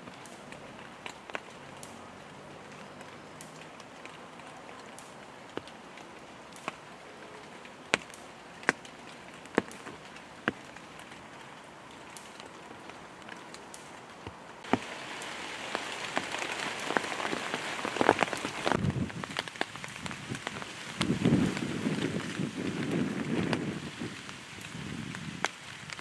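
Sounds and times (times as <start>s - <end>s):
rain pattering: 0.0s - 26.0s.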